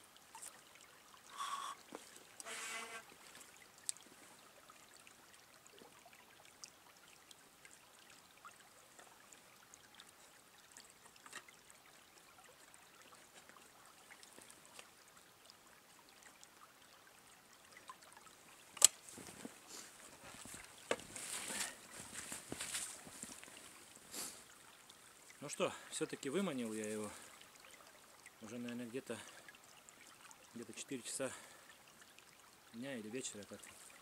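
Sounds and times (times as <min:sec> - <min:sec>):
clothing rustling: 0:19.0 - 0:24.3
footsteps crunching snow: 0:19.0 - 0:24.4.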